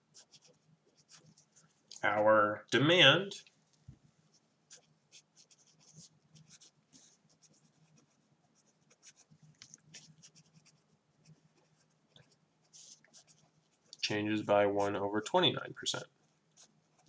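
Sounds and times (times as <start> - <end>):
felt-tip pen scratching paper: 0.1 - 1.7, 4.7 - 14.0.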